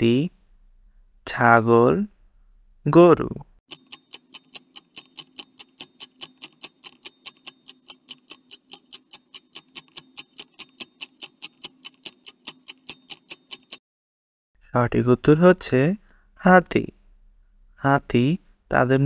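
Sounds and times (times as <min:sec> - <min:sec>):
rapid high clock ticks: 0:03.7 - 0:13.8.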